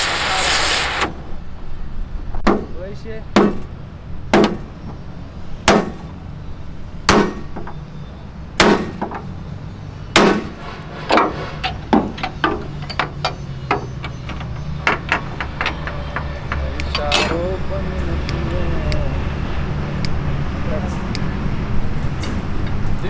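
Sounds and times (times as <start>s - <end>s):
sledgehammer striking metal: 8.6s - 9.1s, 10.2s - 13.2s
light metal taps and clinks: 12.2s - 17.5s.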